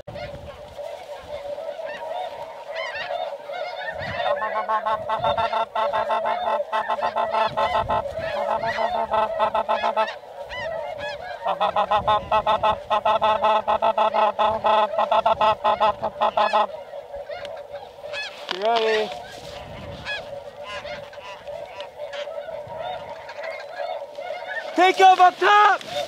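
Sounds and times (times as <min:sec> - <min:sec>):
geese honking: 0:00.0 - 0:26.0.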